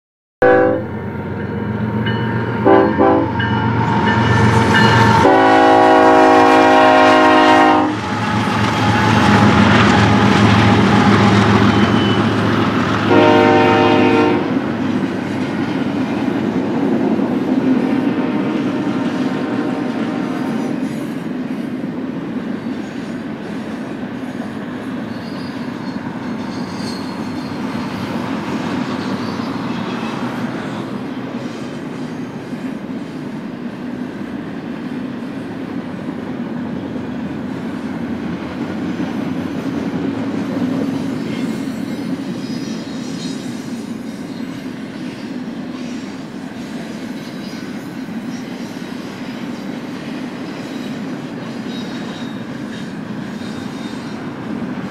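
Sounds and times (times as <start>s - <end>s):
freight train wheels rumbling: 0.4s - 54.9s
high wheel squeals: 8.0s - 12.9s, 24.2s - 32.5s, 40.8s - 49.7s, 50.4s - 54.5s.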